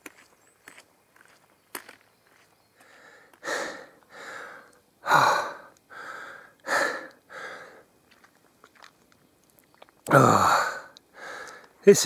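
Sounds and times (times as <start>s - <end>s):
man breathing heavily: 2.8s - 7.9s, 10.1s - 11.8s.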